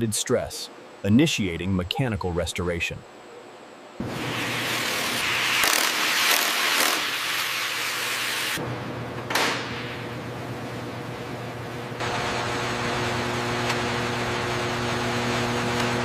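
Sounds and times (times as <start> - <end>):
low steady hum: 0.0 - 4.0.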